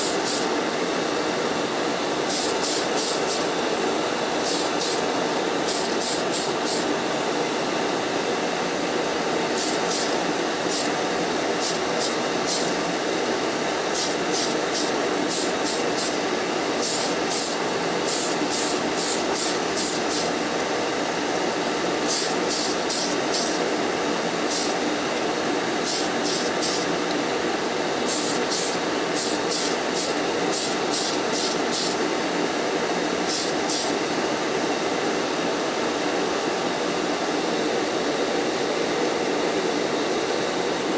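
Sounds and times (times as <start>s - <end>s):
aerosol can hissing bursts: 0.0s - 0.5s, 2.3s - 3.5s, 4.4s - 5.0s, 9.6s - 10.9s, 11.6s - 12.8s, 13.9s - 16.2s, 16.8s - 20.3s, 22.1s - 23.6s, 24.5s - 24.8s, 25.8s - 26.9s, 28.1s - 32.0s, 33.3s - 33.9s
extraction fan running: 0.0s - 40.9s.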